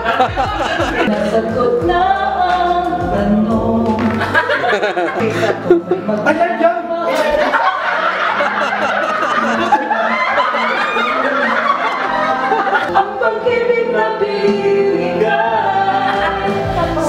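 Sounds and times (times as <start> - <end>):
people laughing and chattering: 0.0 - 1.7, 3.9 - 14.5, 15.1 - 17.0
music with singing voice: 0.0 - 17.0.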